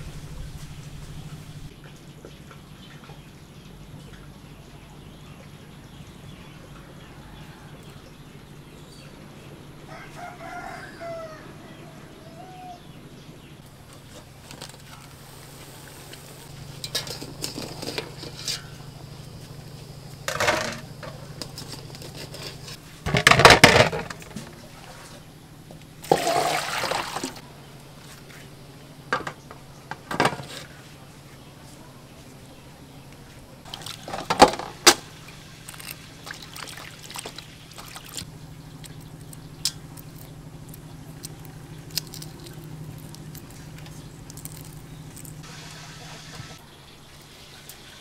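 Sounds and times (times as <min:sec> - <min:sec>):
eggs splashing in water: 0:26.0 - 0:27.4, 0:33.7 - 0:40.3.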